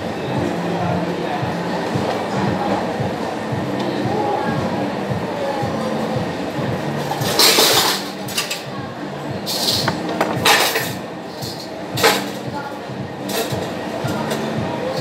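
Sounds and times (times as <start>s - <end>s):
kitchen hum: 5.8s - 12.5s.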